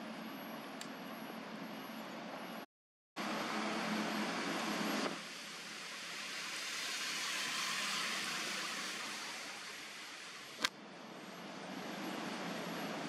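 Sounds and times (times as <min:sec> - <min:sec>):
rushing outdoor background noise: 0:03.2 - 0:13.0.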